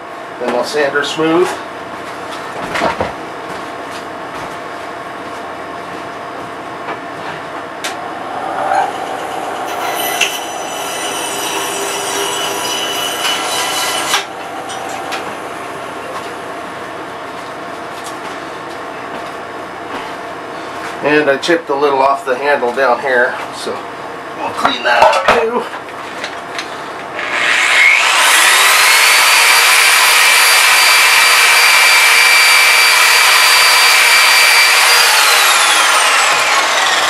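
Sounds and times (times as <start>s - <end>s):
steady background hum: 0.0s - 28.0s
bandsaw whine: 7.8s - 17.1s, 27.1s - 37.0s.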